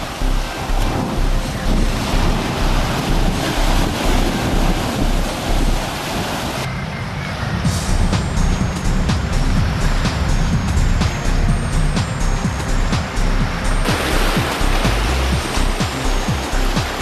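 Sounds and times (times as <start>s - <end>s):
surf breaking over rocks: 0.0s - 6.7s, 13.8s - 17.0s
wind buffeting microphone: 0.0s - 17.0s.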